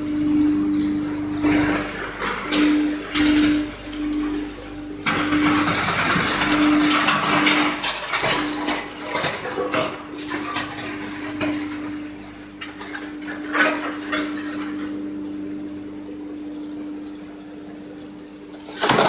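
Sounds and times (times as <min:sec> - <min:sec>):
wood chipper humming: 0:00.0 - 0:19.0
wood chipper rattling: 0:00.0 - 0:19.0
knocks and clatter: 0:01.4 - 0:14.8, 0:18.6 - 0:19.0.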